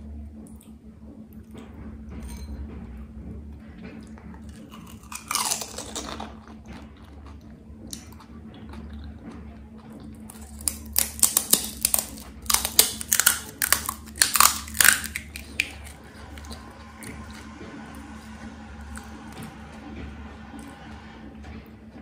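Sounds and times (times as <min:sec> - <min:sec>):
crunchy chewing: 0:04.0 - 0:17.5.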